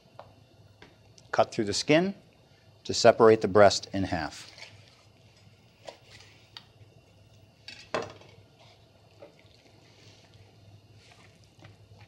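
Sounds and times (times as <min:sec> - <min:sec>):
knife scraping: 0:04.3 - 0:06.4.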